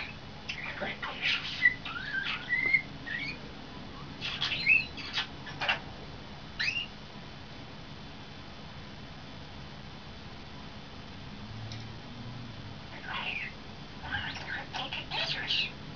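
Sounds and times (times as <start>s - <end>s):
starling whistling and chattering: 0.0s - 5.8s, 6.6s - 6.9s, 13.0s - 15.7s.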